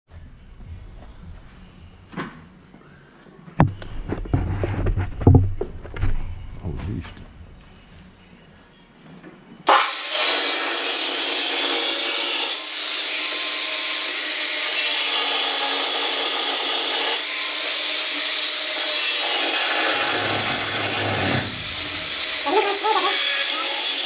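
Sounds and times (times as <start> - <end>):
power tool rasping: 9.7 - 24.0.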